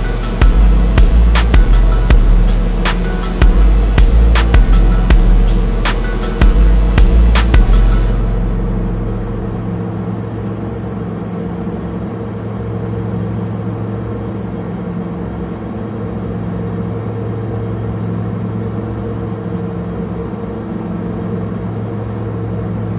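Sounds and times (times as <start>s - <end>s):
truck engine idling: 0.0s - 10.2s.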